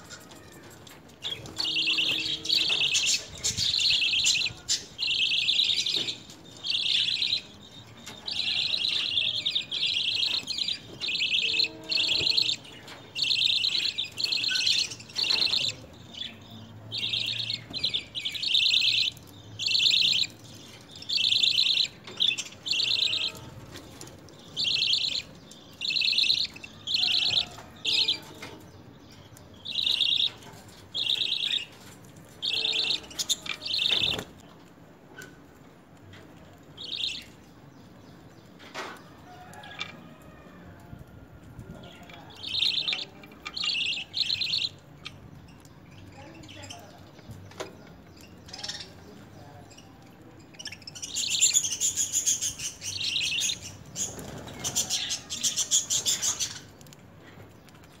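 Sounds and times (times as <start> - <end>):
budgerigars chirping: 1.6 - 7.5, 8.3 - 15.8, 16.9 - 20.4, 21.1 - 23.4, 24.6 - 28.3, 29.6 - 30.4, 31.0 - 31.8, 42.4 - 45.2.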